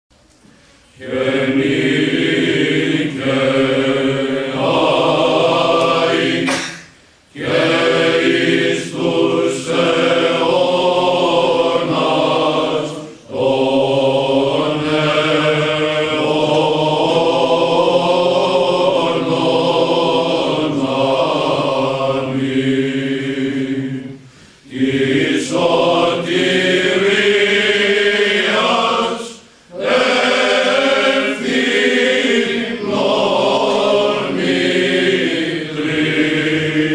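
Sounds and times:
male choir chanting: 1.0s - 36.9s.

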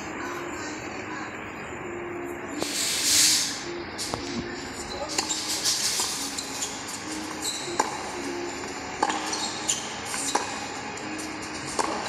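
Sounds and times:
steady background noise: 0.0s - 12.0s
racquet hitting tennis ball: 7.8s - 8.1s, 9.0s - 10.6s, 11.7s - 12.0s.

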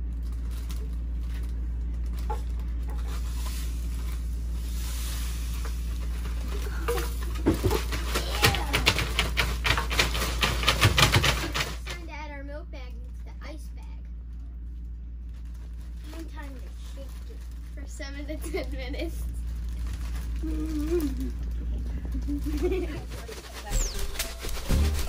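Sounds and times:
plastic bags crinkling: 0.0s - 11.9s, 14.6s - 25.0s
salt hissing into plastic bags: 3.0s - 7.4s.

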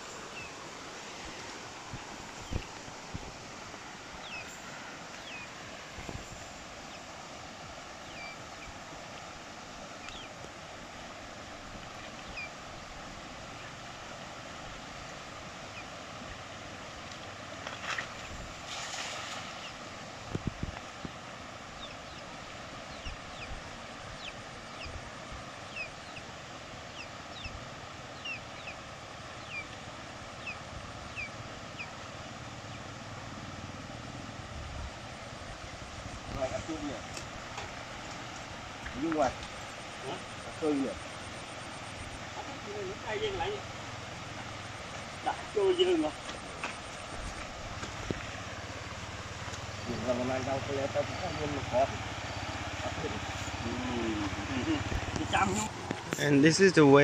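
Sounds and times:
rush of flooded river: 0.0s - 57.0s
cast net splashing on water: 17.6s - 19.8s.

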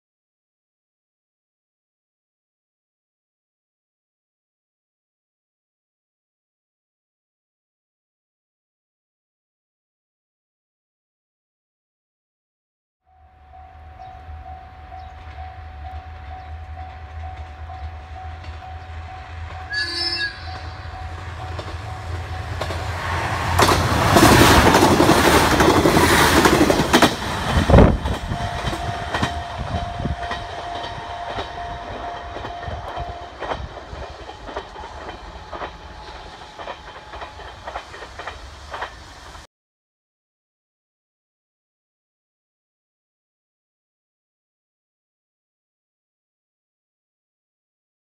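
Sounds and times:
train horn toot: 13.1s - 22.8s, 27.8s - 34.1s
railcar passing loudly: 13.1s - 39.5s
wheels clattering over rail joints: 20.6s - 39.4s.

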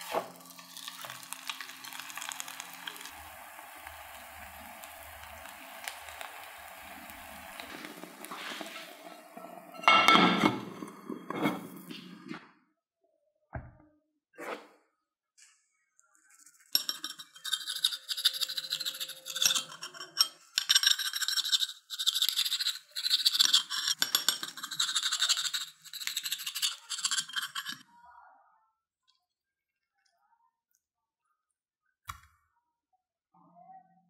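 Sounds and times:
plate set down knock: 9.8s - 11.9s.

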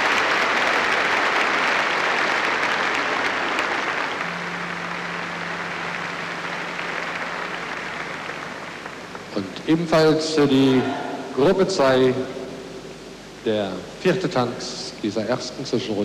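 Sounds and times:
large audience applauding: 0.0s - 10.9s.

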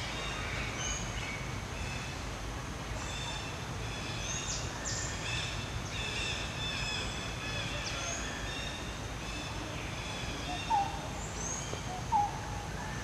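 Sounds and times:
birds chirping and calling: 10.1s - 12.4s.

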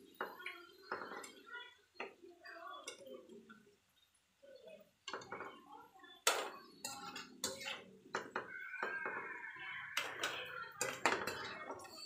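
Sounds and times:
metal spatula scraping frying pan: 6.8s - 8.0s.

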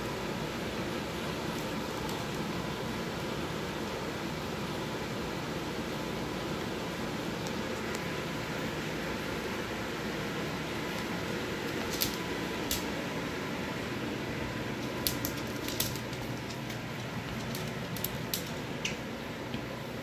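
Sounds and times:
steady background hum: 0.0s - 20.0s
dog claws clicking on wooden floor: 10.9s - 12.9s, 14.8s - 19.6s.

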